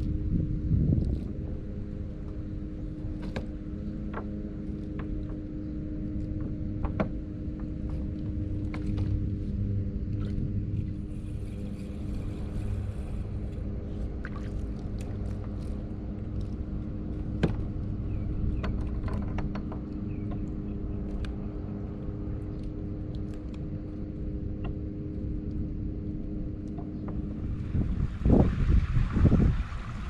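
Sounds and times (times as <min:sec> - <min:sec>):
low rumble: 0:00.0 - 0:30.0
steady motor hum: 0:00.0 - 0:30.0
light clicks and taps: 0:14.2 - 0:25.6.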